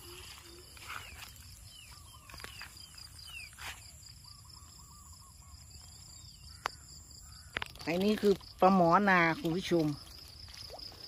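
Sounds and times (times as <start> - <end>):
bird chirps: 0.0 - 7.7
high insect trill: 0.0 - 11.0.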